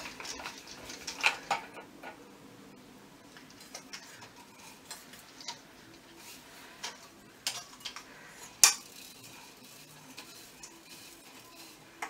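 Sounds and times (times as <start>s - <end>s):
metal coat rack parts clinking: 6.8s - 12.0s.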